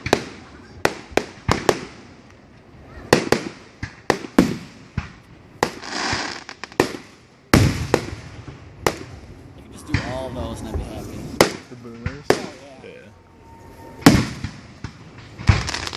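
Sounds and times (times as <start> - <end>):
fireworks crackle: 0.0 - 15.9
fireworks shells bursting: 13.8 - 15.9.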